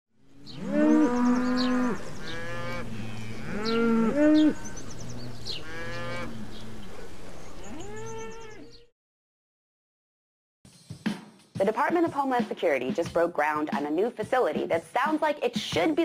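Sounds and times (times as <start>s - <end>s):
cattle mooing: 0.4s - 6.9s, 7.6s - 8.8s.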